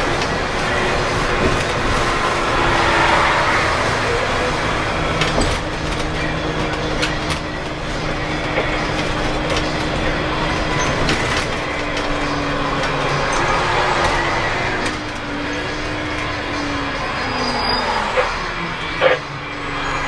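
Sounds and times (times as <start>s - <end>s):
clicks and rattles in bus body: 0.0s - 2.3s, 4.9s - 16.5s
diesel bus engine running: 0.0s - 20.0s
road rumble: 0.0s - 20.0s.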